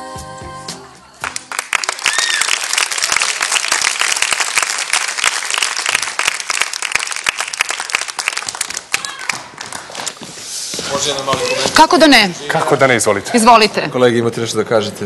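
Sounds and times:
music: 0.0s - 1.7s
studio audience applauding: 1.2s - 10.2s
person whooping: 2.1s - 2.5s.

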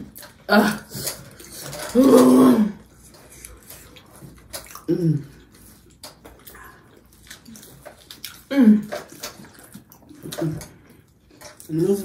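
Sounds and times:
chewing and mouth clicks: 2.9s - 12.0s.

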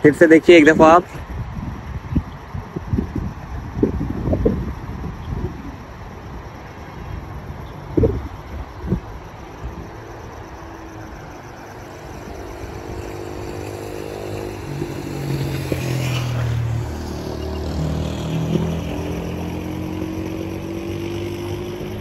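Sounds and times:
motor vehicle engine accelerating: 7.9s - 22.0s.

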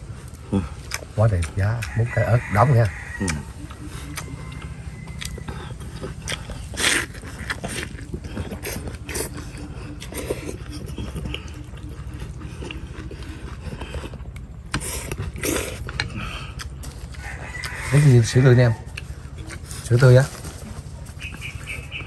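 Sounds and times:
noodles slurped and chewed: 5.0s - 17.9s.

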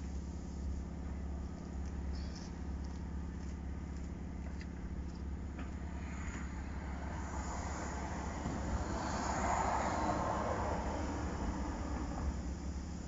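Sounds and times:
steady low hum: 0.0s - 13.0s
car driving past: 5.4s - 13.0s.

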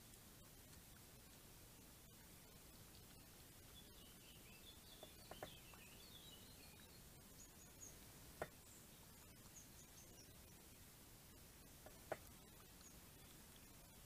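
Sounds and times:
steady low hiss: 0.0s - 14.0s
faint bird chirps: 2.0s - 14.0s.

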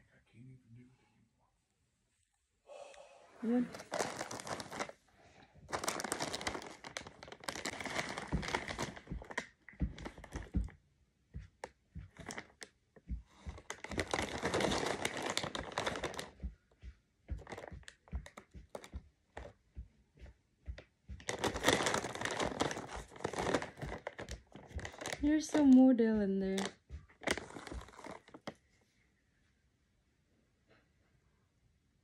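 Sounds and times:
plastic bag crinkling: 3.6s - 5.0s, 5.7s - 10.6s, 12.2s - 12.7s, 13.6s - 16.4s, 17.4s - 18.9s, 21.2s - 28.6s.

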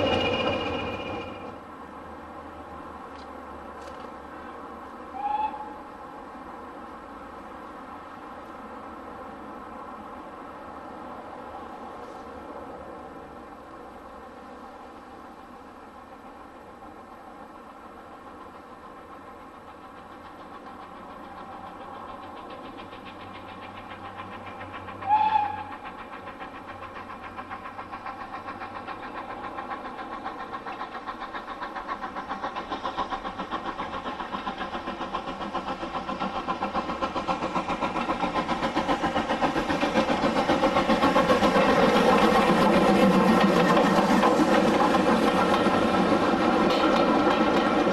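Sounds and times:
steam locomotive exhaust beats: 0.0s - 47.9s
steam whistle blast: 5.2s - 5.9s, 25.0s - 25.7s.

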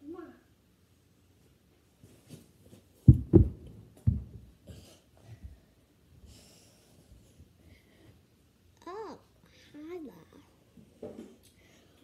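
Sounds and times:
heavy thumps on floor: 3.0s - 4.5s
person breathing: 4.7s - 8.3s.

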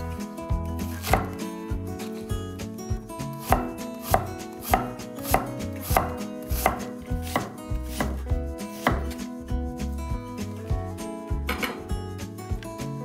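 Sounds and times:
knife chopping on cutting board: 0.9s - 1.4s, 3.4s - 9.3s.

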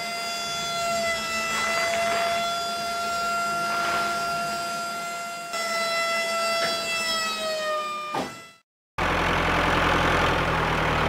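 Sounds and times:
rough motor-like running noise: 0.0s - 5.4s, 9.0s - 11.0s
small electric motor whining: 0.0s - 8.6s.

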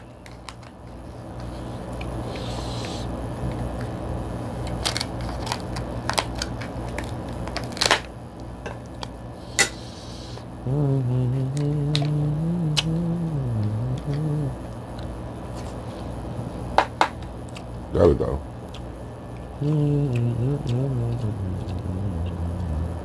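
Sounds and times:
crab shell cracking and snipping: 4.6s - 8.1s
man humming: 9.9s - 14.7s, 19.5s - 23.0s.

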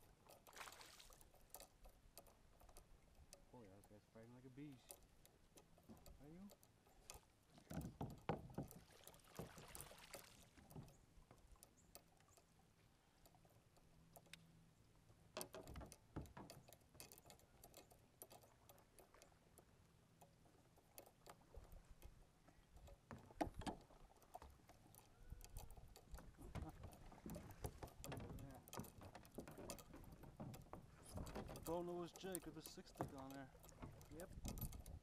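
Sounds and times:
faint knocks of kayak gear: 4.6s - 12.5s, 15.3s - 35.0s.

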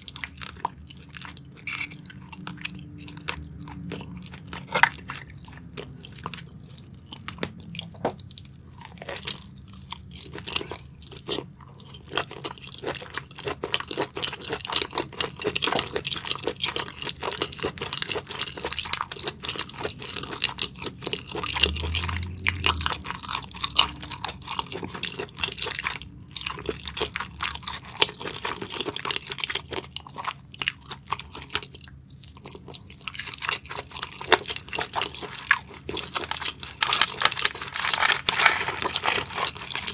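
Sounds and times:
close chewing and crunching: 0.0s - 39.9s.

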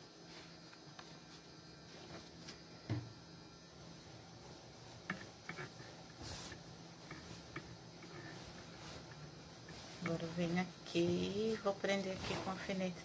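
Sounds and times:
low electrical hum: 0.0s - 13.0s
cloth rustling: 6.2s - 12.7s.

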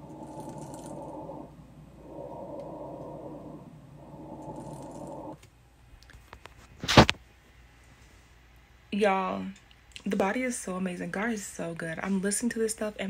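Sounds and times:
breathing: 0.0s - 5.4s
lung crackles through stethoscope: 6.1s - 7.2s.

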